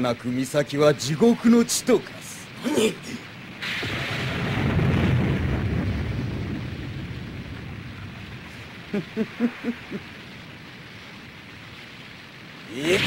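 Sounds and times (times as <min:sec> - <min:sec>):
deep rumble of ground shaking: 0:03.2 - 0:13.0
man chuckling: 0:08.8 - 0:10.1.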